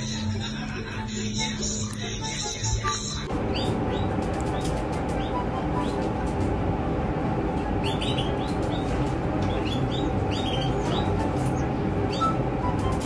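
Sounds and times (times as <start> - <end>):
steady low hum: 0.0 - 13.0
chicks cheeping: 1.0 - 6.1, 7.7 - 13.0.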